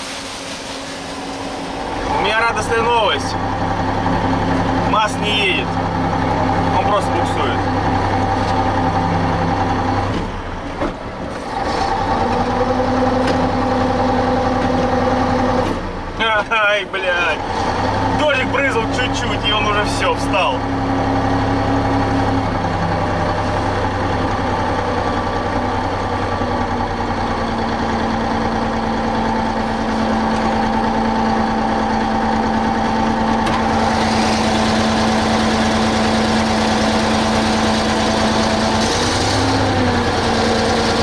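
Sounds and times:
rushing noise: 0:00.0 - 0:03.2
truck diesel engine running: 0:00.0 - 0:41.0.

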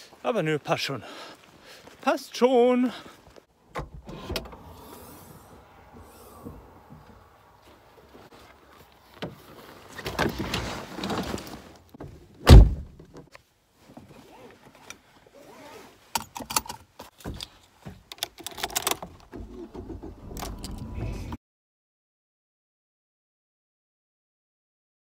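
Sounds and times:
rustling: 0:03.1 - 0:12.3
loud deep thud: 0:12.5 - 0:13.0
sharp clicks and rattles: 0:18.1 - 0:20.9.

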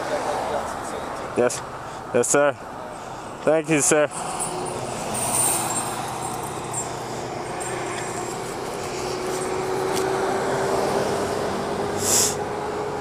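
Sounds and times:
short hiss: 0:12.0 - 0:12.4.

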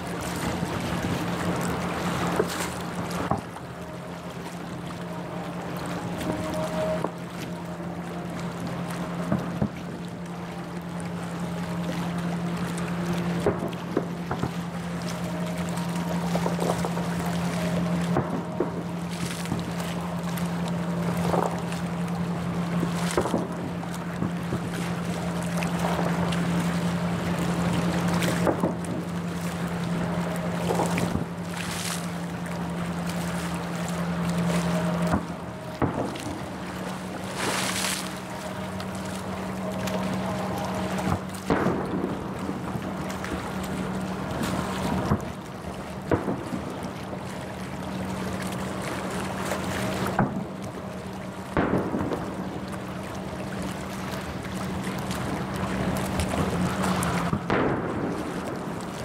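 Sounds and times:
steady low hum: 0:00.0 - 0:59.0
fireworks booming: 0:41.1 - 0:42.6, 0:51.6 - 0:52.3, 0:57.3 - 0:58.6.

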